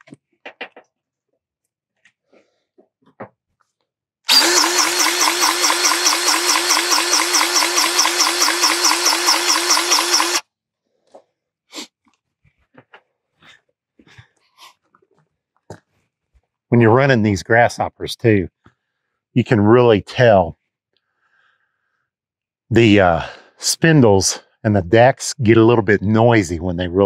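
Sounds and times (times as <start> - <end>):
grease gun motor pumping: 4.3 - 10.4.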